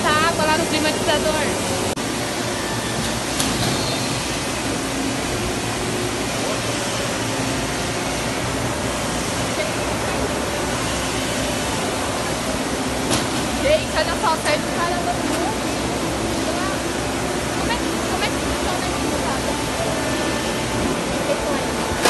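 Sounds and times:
factory machinery noise: 0:00.0 - 0:22.0.

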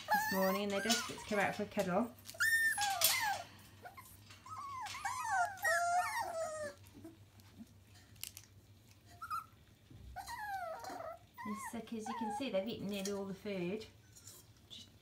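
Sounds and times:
puppies whining and yelping: 0:00.0 - 0:01.6, 0:02.2 - 0:07.6, 0:09.1 - 0:12.7.

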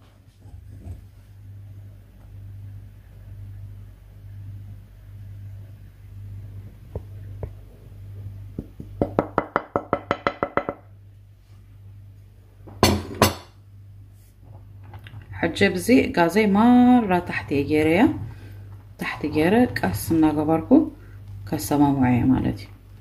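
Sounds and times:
low steady hum: 0:00.0 - 0:23.0
wooden spoon knocking ceramic bowl: 0:08.6 - 0:10.9.

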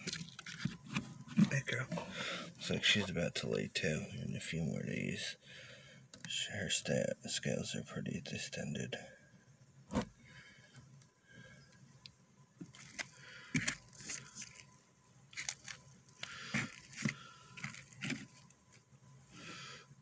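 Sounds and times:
moss and bark crunching and rustling: 0:12.7 - 0:14.7, 0:15.3 - 0:18.5.

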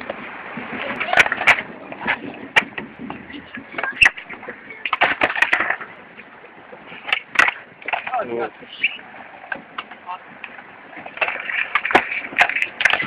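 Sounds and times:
skateboard deck clacks: 0:00.0 - 0:13.0
skateboard wheels rolling: 0:00.0 - 0:13.0.

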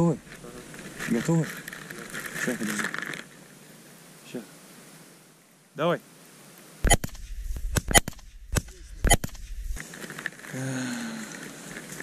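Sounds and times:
shotgun shots: 0:06.8 - 0:09.8.

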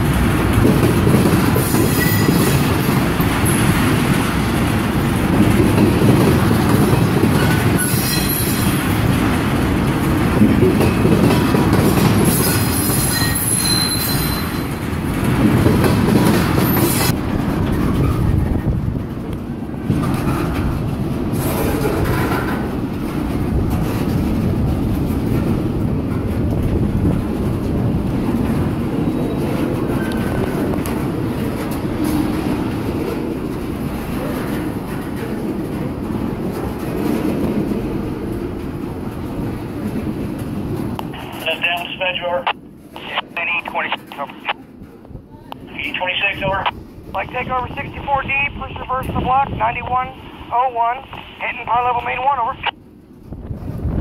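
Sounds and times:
wheels clacking over track: 0:00.0 - 0:41.1
train wheels rumbling on rail: 0:00.0 - 0:54.0
high wheel squeal: 0:12.4 - 0:14.7.

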